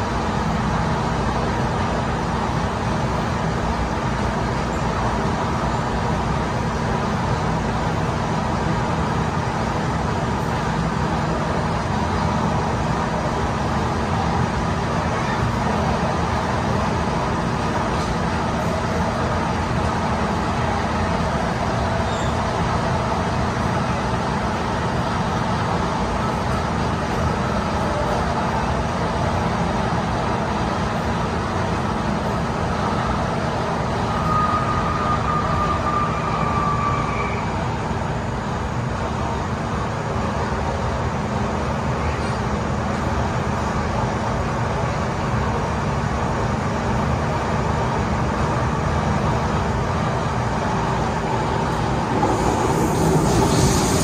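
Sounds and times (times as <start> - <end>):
train wheels rumbling on rails: 0.0 - 54.0
faint high whistle: 34.0 - 37.8.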